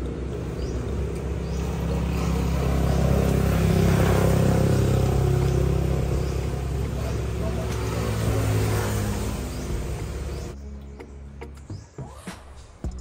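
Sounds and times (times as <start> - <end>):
vehicle passing: 0.0 - 11.9.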